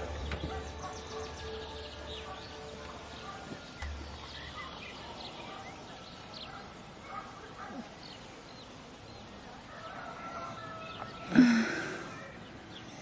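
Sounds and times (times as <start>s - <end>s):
high bird chirps: 0.0s - 7.2s.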